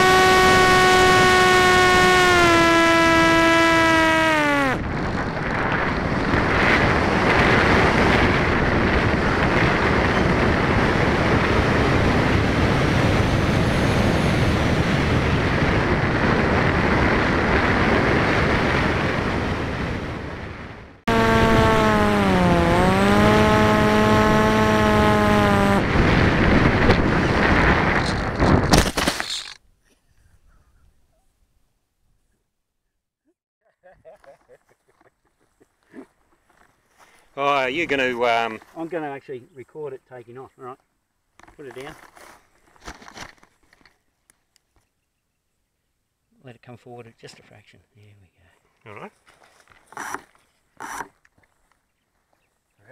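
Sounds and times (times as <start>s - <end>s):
propeller motor whine: 0.0s - 20.4s, 21.0s - 28.3s
air rushing over camera: 2.9s - 29.6s.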